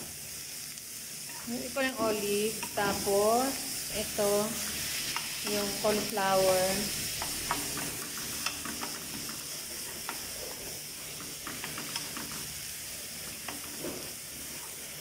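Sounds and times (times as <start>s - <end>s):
vegetables sizzling in a frying pan: 0.0s - 15.0s
spatula scraping a pan: 4.2s - 12.5s.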